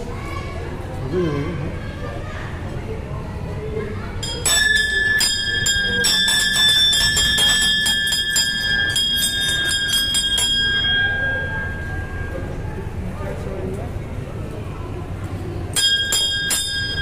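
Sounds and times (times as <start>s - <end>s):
brass bell ringing: 4.2s - 13.0s, 15.8s - 17.0s.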